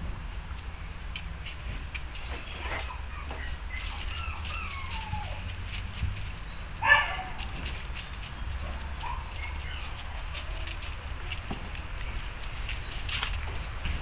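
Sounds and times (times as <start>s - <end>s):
pattering and rustling in dry leaves: 0.0s - 14.0s
puppies whining: 2.2s - 11.4s
puppy yapping: 2.3s - 5.6s, 6.6s - 7.6s, 8.6s - 10.8s.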